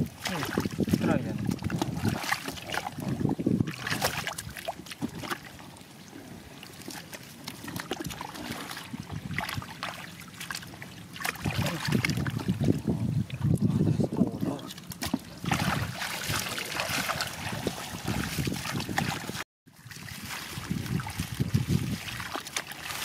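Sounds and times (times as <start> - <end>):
hands splashing in muddy water: 0.0 - 5.5, 6.8 - 12.7, 14.7 - 23.0.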